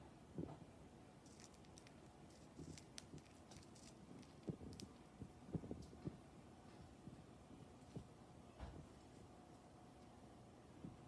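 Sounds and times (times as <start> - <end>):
budgie cracking seeds: 1.2 - 6.0.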